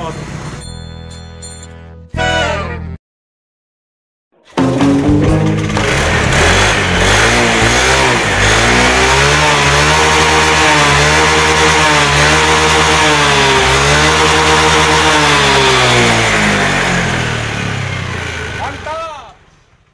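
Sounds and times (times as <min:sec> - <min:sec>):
scooter engine revving: 0:04.7 - 0:18.9.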